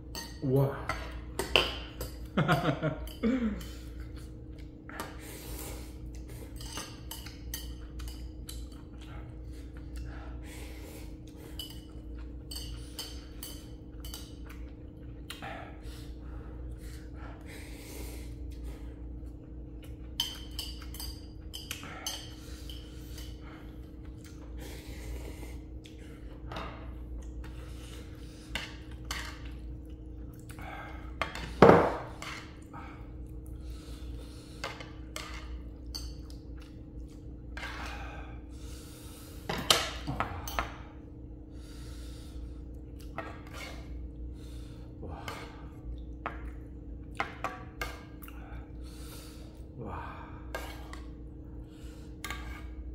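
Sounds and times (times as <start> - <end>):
steady low hum: 0.0 - 52.9
eating noises: 3.6 - 20.2
metal utensils clinking on bowl: 6.4 - 8.8, 11.5 - 14.5, 19.8 - 23.4.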